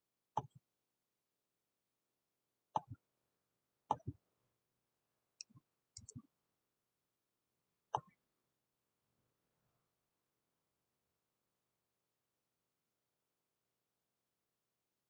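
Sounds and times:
computer mouse button clicks: 0:06.0 - 0:06.2.

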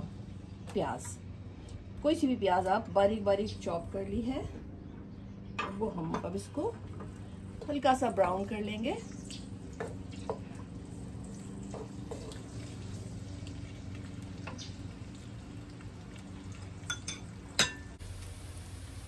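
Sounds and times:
steady low hum: 0:00.0 - 0:19.0
onions frying in oil: 0:07.6 - 0:19.0
spatula scraping and tapping pan: 0:11.7 - 0:12.5.

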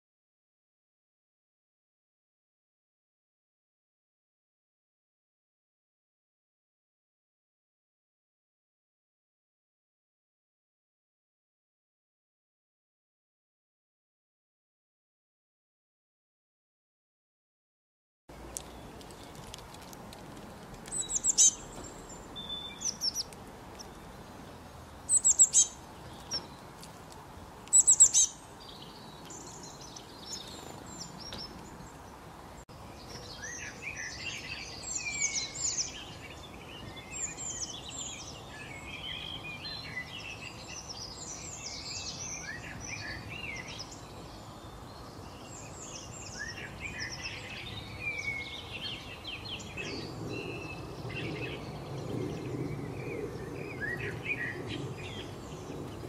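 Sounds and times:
chorus of bird calls: 0:20.8 - 0:26.6, 0:27.7 - 0:56.0
sharp high bird chirps: 0:20.9 - 0:23.3, 0:25.1 - 0:26.4, 0:27.7 - 0:28.4.

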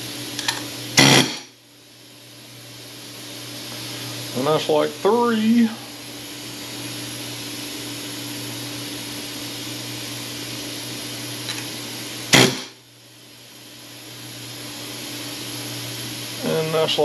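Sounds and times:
pneumatic air hammer burst: 0:00.0 - 0:01.6, 0:12.3 - 0:12.8
machine hum with high whine: 0:00.0 - 0:17.0.

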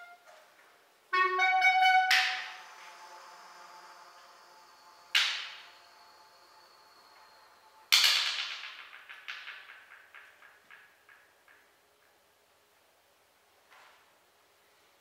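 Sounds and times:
percussion cracks: 0:01.1 - 0:12.4
thin high ringing tone: 0:01.2 - 0:10.7.

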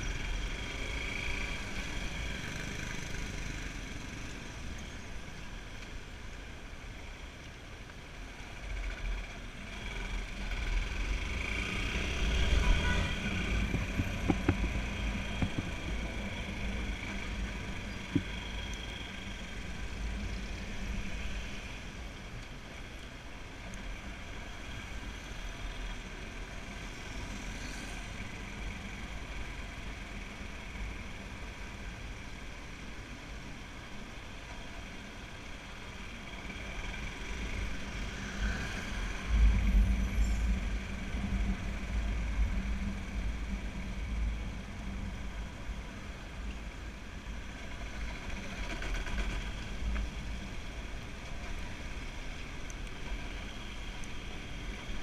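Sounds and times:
road noise: 0:00.0 - 0:55.0
wind rumbling on microphone: 0:12.1 - 0:18.5.

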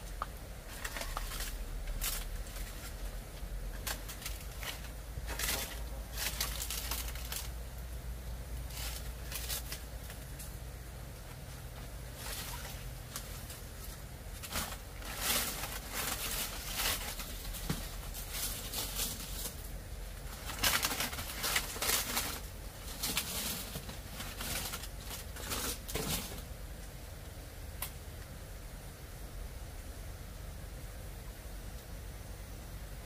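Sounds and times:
banana leaves rustling and flapping: 0:00.1 - 0:07.6, 0:08.6 - 0:10.6, 0:11.2 - 0:26.5.

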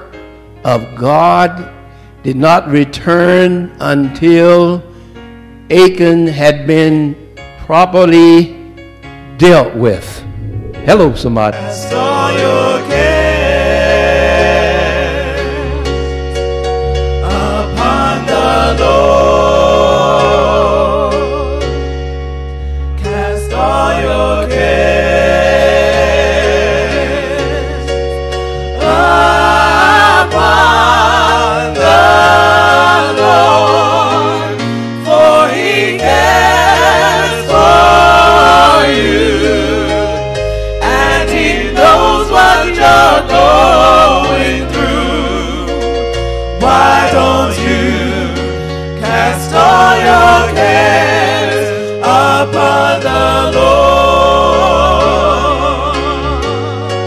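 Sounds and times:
sustained bass notes: 0:09.3 - 0:14.4, 0:36.1 - 0:51.4
voices singing gospel: 0:09.7 - 0:16.2, 0:17.1 - 0:21.9, 0:23.0 - 0:57.0
low bass line: 0:09.8 - 0:12.2.

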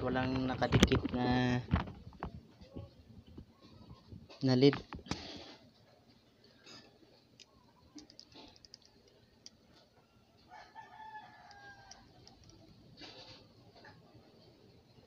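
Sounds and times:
rooster crowing: 0:10.0 - 0:12.2.

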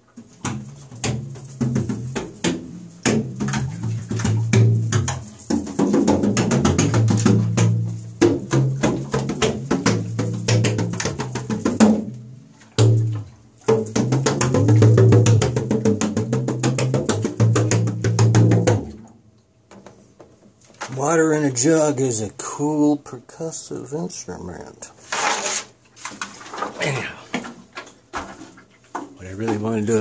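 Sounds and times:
hand drumming on water jug: 0:00.1 - 0:19.1.

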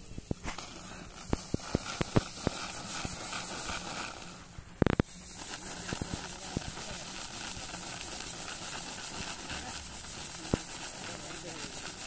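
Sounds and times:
faint high hiss: 0:00.0 - 0:12.0.

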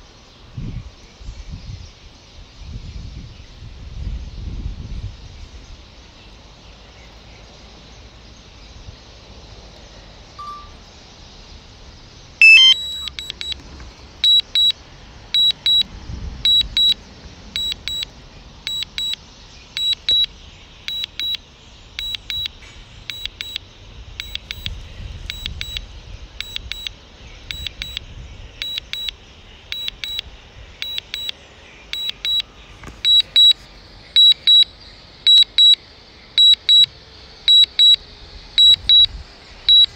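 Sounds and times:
short high beeps: 0:10.4 - 0:10.8, 0:12.4 - 0:13.6, 0:14.2 - 0:14.7, 0:16.5 - 0:17.0, 0:17.6 - 0:18.0, 0:19.8 - 0:20.3, 0:20.9 - 0:21.4, 0:22.0 - 0:22.5, 0:23.1 - 0:23.6, 0:24.2 - 0:24.7, 0:25.3 - 0:25.8, 0:26.4 - 0:26.9, 0:27.5 - 0:28.0, 0:28.6 - 0:29.1, 0:29.7 - 0:30.2, 0:30.8 - 0:31.3, 0:32.0 - 0:32.4, 0:33.0 - 0:33.6, 0:34.2 - 0:34.7, 0:35.3 - 0:35.8, 0:36.4 - 0:36.9, 0:37.5 - 0:38.0, 0:38.6 - 0:39.1, 0:39.7 - 0:39.9
sharp alert tone: 0:12.4 - 0:13.2.

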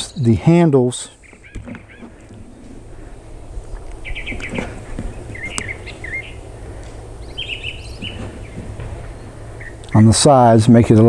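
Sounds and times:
small birds chirping: 0:00.0 - 0:10.6
low rumble: 0:02.2 - 0:10.2.

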